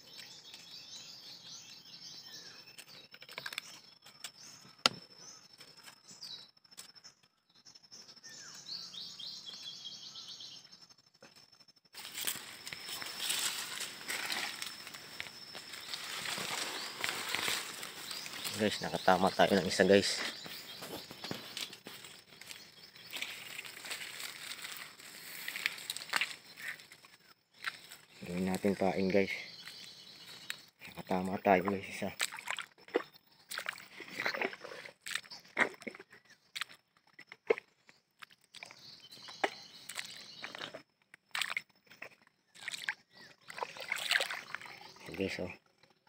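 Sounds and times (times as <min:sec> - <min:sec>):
twigs snapping: 0:02.7 - 0:05.0, 0:12.0 - 0:19.1, 0:20.4 - 0:28.0
leaves and grass rustling: 0:12.0 - 0:30.6.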